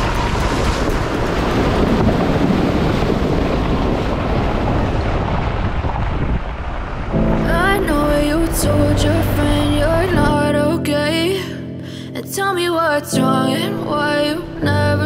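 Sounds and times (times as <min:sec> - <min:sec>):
vehicle driving on gravel: 0:00.0 - 0:10.2
wind buffeting microphone: 0:00.0 - 0:11.2.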